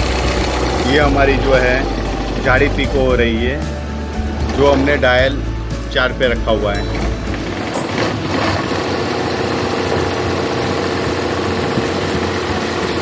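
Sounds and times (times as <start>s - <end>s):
sewing machine running: 0.0s - 2.8s, 7.0s - 13.0s.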